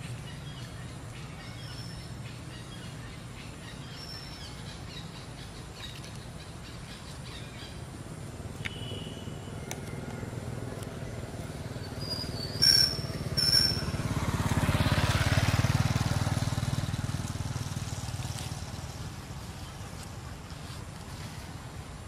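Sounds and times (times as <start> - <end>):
high chirps and squeaks: 11.8 - 14.0.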